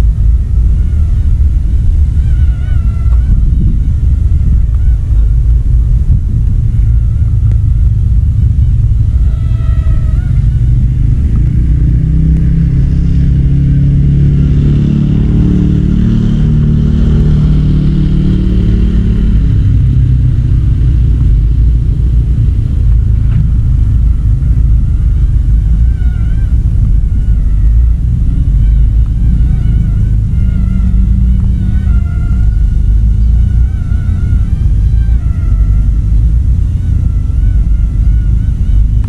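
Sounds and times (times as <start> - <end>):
motorcycle engine passing: 0.0 - 39.0
wind buffeting microphone: 0.0 - 39.0.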